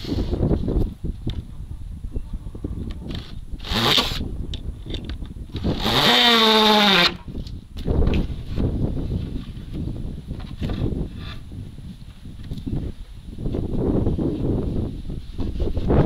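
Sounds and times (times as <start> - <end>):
power drill driving screws into wood: 3.1 - 4.2, 5.6 - 7.2.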